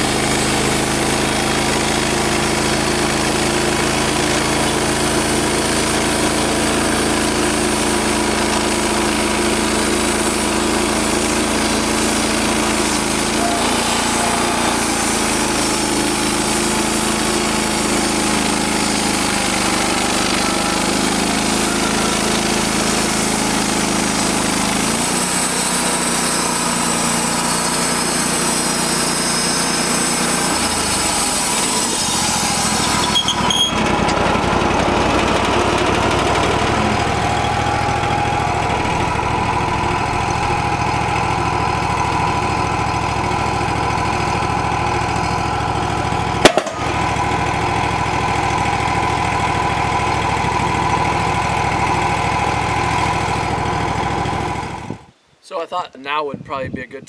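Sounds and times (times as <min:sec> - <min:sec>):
sawmill engine running: 0:00.0 - 0:55.2
sharp knock: 0:46.4 - 0:47.0.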